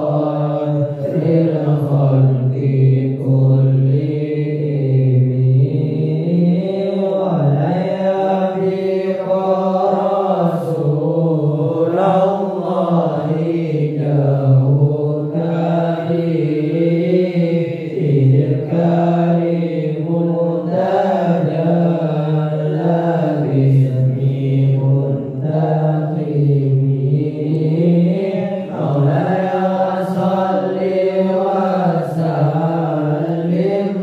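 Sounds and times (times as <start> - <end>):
man chanting into microphone: 0.0 - 34.0.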